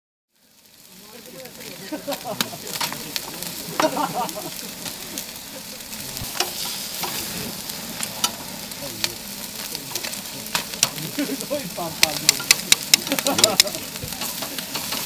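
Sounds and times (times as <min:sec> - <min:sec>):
chicken sizzling on a grill: 0:00.3 - 0:15.0
metal tongs clicking on grate: 0:12.0 - 0:15.0.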